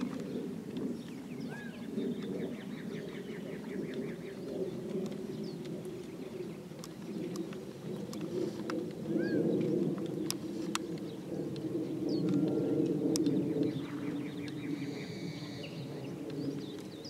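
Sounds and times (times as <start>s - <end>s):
birds chirping: 0.0s - 17.0s
faint clicks: 3.8s - 17.0s.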